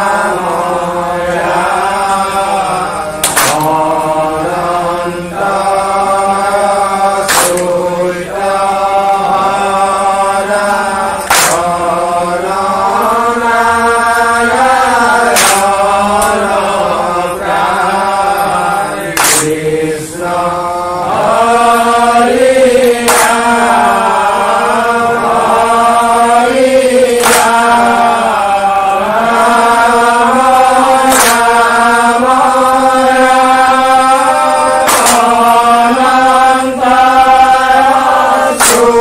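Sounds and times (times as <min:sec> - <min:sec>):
group hand claps: 0:00.0 - 0:39.0
men chanting together: 0:00.0 - 0:39.0.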